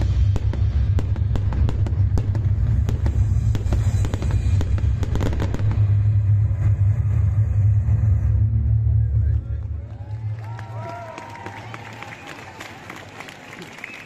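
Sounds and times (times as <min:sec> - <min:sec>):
fireworks bangs and crackles: 0:00.0 - 0:10.4
low rumble: 0:00.0 - 0:11.0.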